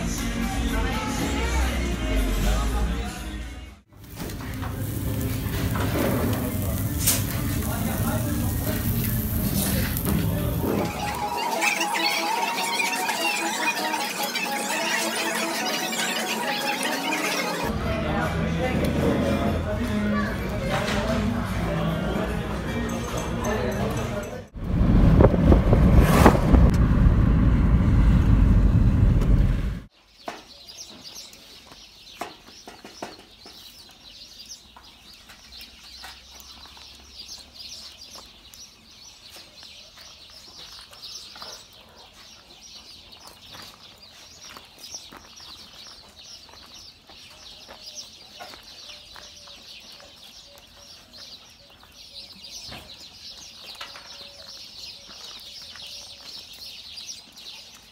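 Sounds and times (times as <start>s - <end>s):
loud rush of noise: 4.2s - 19.7s, 24.6s - 29.9s
bird calls: 30.0s - 57.9s.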